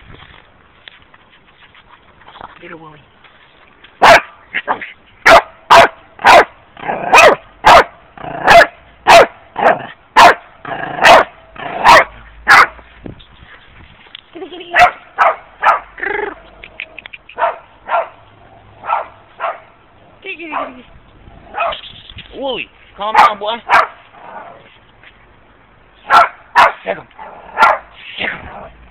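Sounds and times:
dog barking and yipping: 0:04.0 - 0:12.8, 0:14.7 - 0:16.5, 0:17.2 - 0:19.8, 0:21.5 - 0:21.9, 0:23.1 - 0:24.6, 0:26.0 - 0:28.0.

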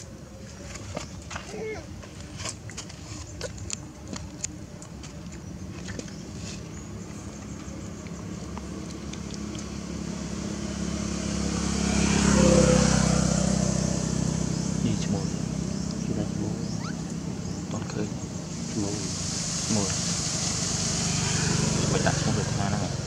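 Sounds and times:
vehicle engine passing by: 0:07.4 - 0:23.0.

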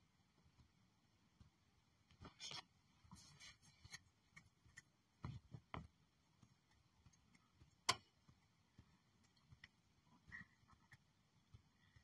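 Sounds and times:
faint ticks and clicks: 0:03.9 - 0:12.0.

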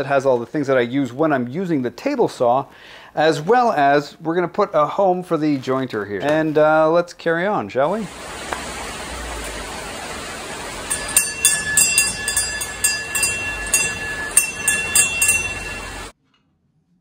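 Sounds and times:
steady hiss: 0:07.9 - 0:16.1
small bell ringing: 0:10.4 - 0:16.1.

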